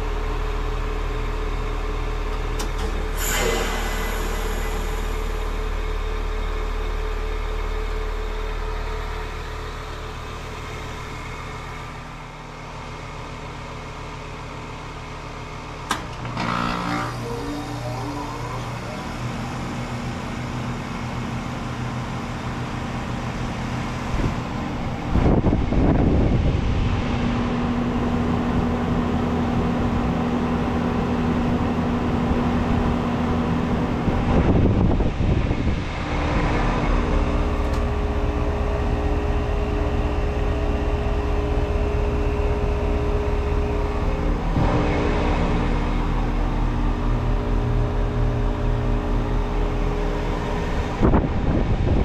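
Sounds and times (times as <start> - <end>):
heat pump humming: 21.7 - 52.0.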